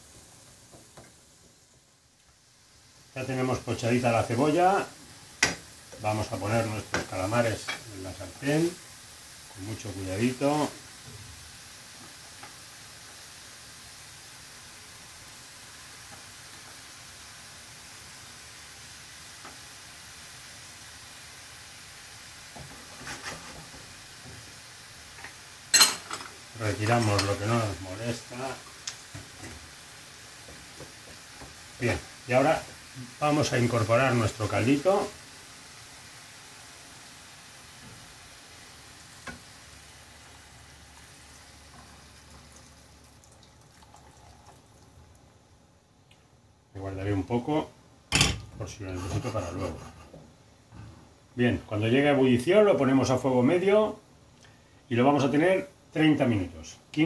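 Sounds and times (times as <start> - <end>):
food sizzling in a pan: 0.0 - 57.0
liquid pouring into a pan: 38.4 - 45.3.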